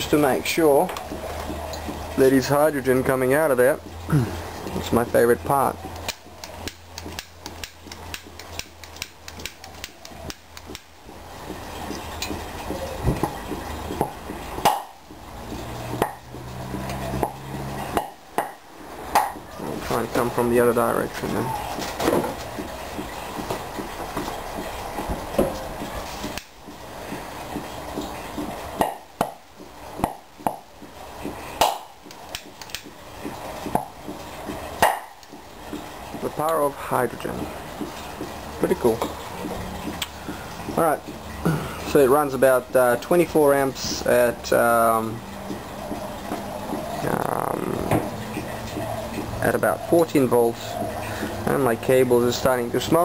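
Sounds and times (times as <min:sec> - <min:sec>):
sharp clicks: 0:05.9 - 0:11.0, 0:31.6 - 0:33.0.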